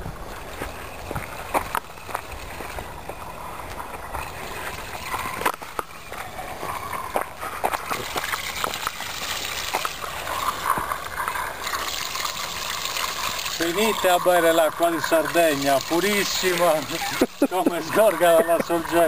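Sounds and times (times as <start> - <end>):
water splashing from a tap: 7.8 - 10.4, 11.6 - 19.0.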